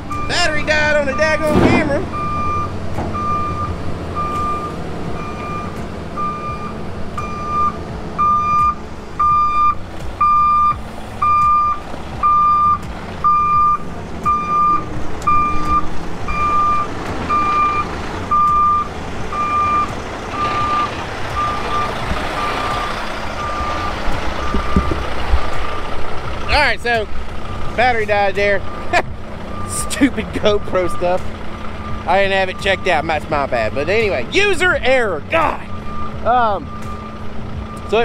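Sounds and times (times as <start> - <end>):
diesel engines running: 0.0 - 38.0
backup alarm beeping: 0.1 - 25.0.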